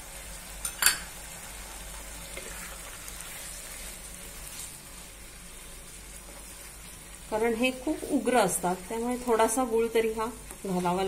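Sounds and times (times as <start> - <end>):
beans sizzling in a pan: 0.0 - 11.0.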